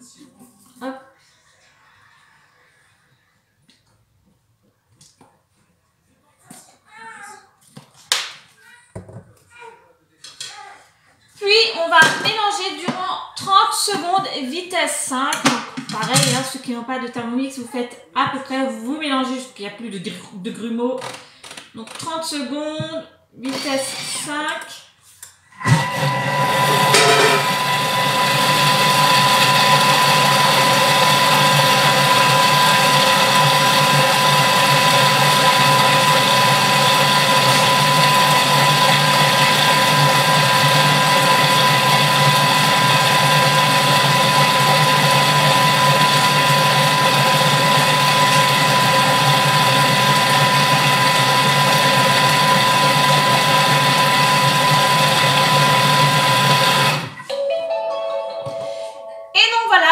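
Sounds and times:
food processor motor whine: 25.6s - 57.3s.

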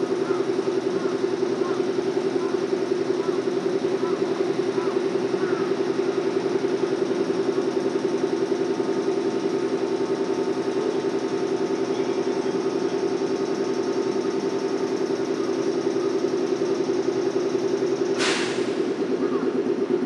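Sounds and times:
train machinery humming: 0.0s - 20.0s.

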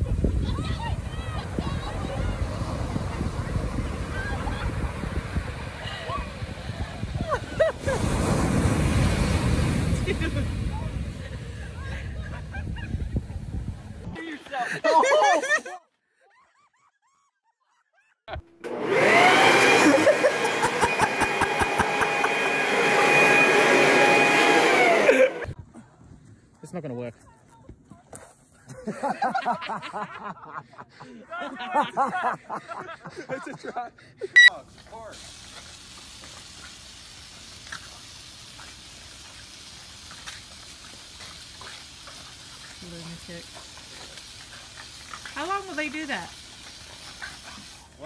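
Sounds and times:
garden hose spray hissing: 0.0s - 14.8s, 34.5s - 48.0s
electric blower motor whining: 18.6s - 25.5s
water pattering down: 34.6s - 48.0s.

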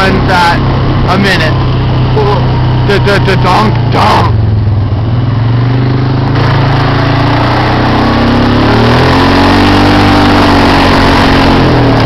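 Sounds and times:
quad bike engine running: 0.0s - 12.0s.

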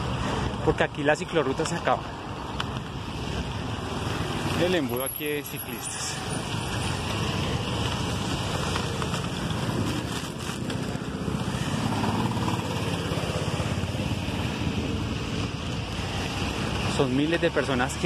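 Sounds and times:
bicycle road noise on wet road: 0.0s - 18.0s
cars driving past: 0.0s - 18.0s
wind rumbling on microphone: 6.2s - 16.9s.

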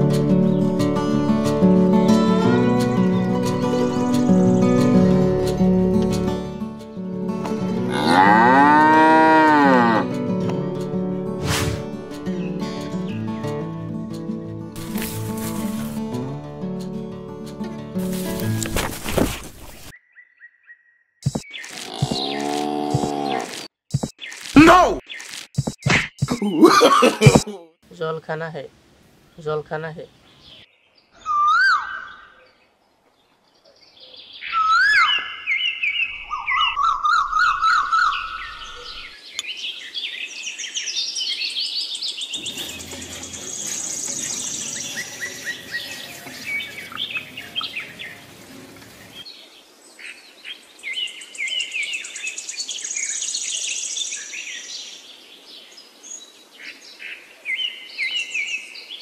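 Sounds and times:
birds chirping and singing: 18.1s - 27.4s, 30.1s - 59.0s.

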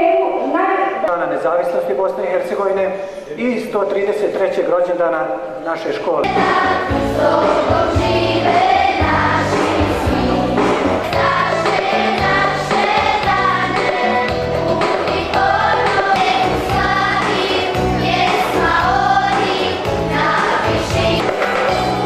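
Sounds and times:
children's choir singing: 6.2s - 21.8s
instrumental accompaniment: 6.2s - 22.0s.

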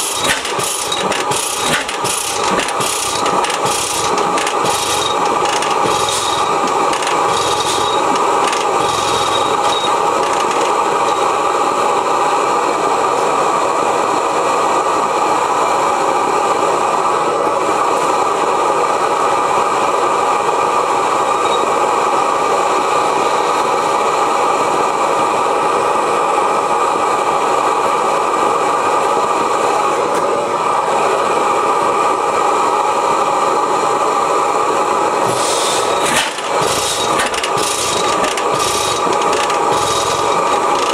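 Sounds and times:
propane burner roaring: 0.0s - 40.9s
evenly spaced clicks: 0.2s - 11.2s, 36.2s - 40.9s.

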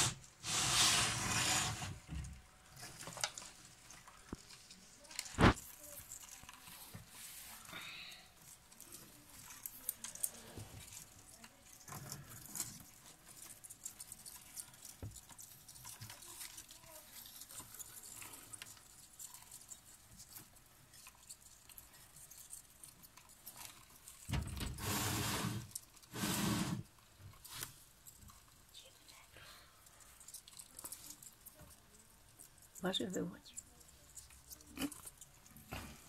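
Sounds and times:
rustling noise: 0.0s - 7.7s, 8.4s - 29.0s.

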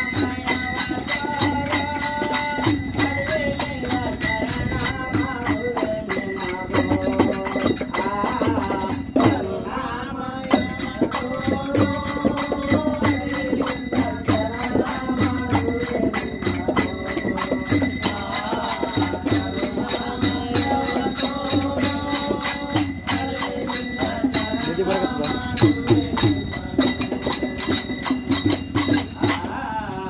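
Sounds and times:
hand cymbals: 0.0s - 30.0s
men singing together: 0.0s - 30.0s
drum beat: 10.5s - 29.6s.

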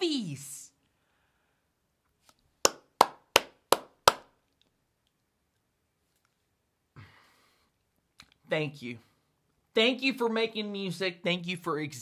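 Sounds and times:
faint breathy sound: 0.8s - 1.8s, 6.9s - 7.8s
applause: 2.6s - 4.3s
hand claps: 2.6s - 4.4s.

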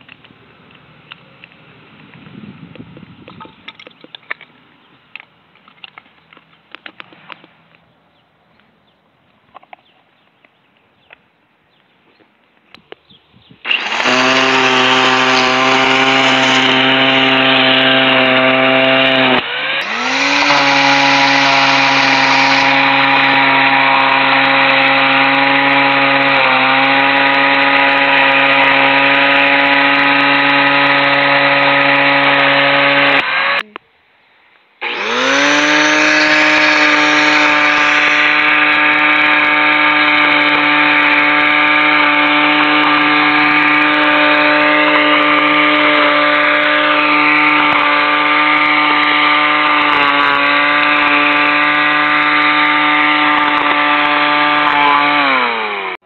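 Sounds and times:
electric string trimmer whining: 13.6s - 33.7s, 34.8s - 56.0s.

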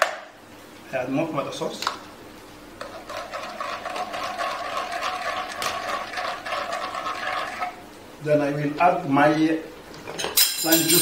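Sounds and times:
whisk beating in frying pan: 2.8s - 7.8s.

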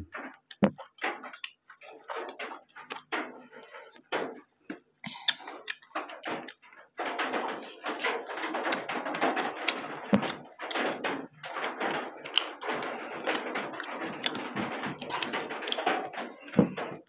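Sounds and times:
wet chewing and lip-smacking: 0.3s - 3.4s, 11.8s - 16.9s.

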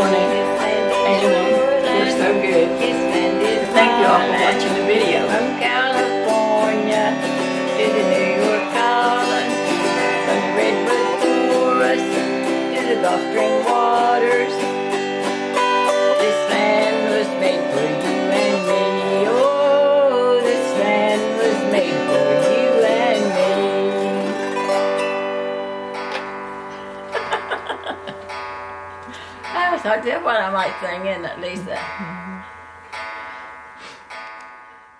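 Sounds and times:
autoharp strummed chords: 0.0s - 34.9s
wavering melody line: 0.0s - 34.9s.

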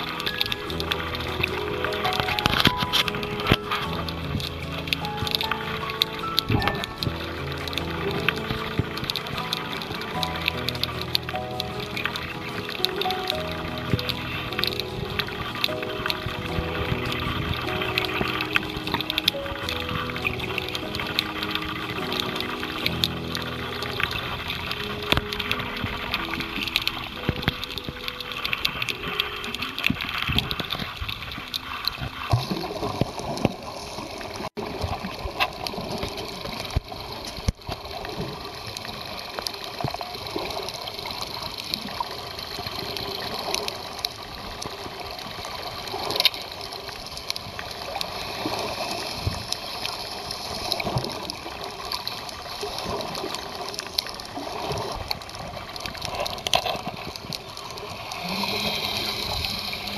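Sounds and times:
underwater rush of moving water: 0.0s - 59.9s
underwater clicks and pops: 0.2s - 33.6s.

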